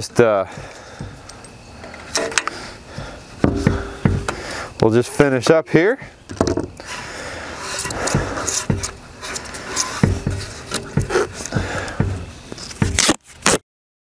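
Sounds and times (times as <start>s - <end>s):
duct tape rustling: 6.3s - 13.6s
light knocks and scrapes on metal frame: 7.6s - 13.0s.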